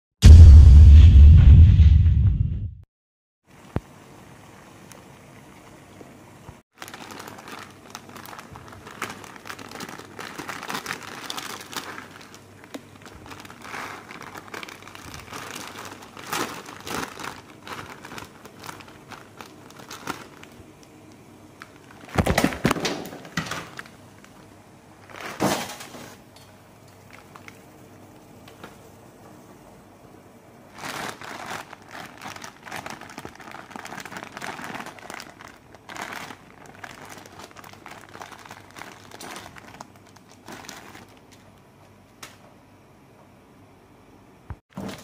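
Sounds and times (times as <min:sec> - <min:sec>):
plastic packet crinkling: 0:06.7 - 0:26.2, 0:26.9 - 0:27.8, 0:30.7 - 0:41.7.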